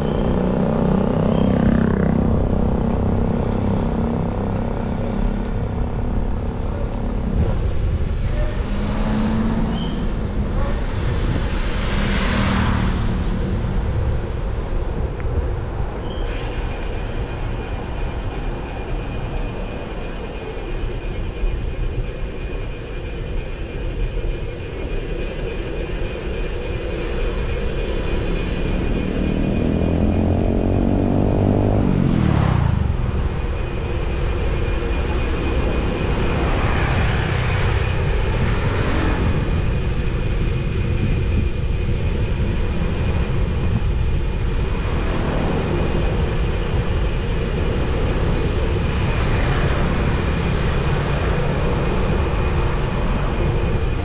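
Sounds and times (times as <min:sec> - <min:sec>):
passing road traffic: 0:00.0 - 0:54.0
wind rumble on microphone: 0:00.0 - 0:54.0
vehicle engine passing by: 0:10.6 - 0:14.0, 0:28.0 - 0:33.9.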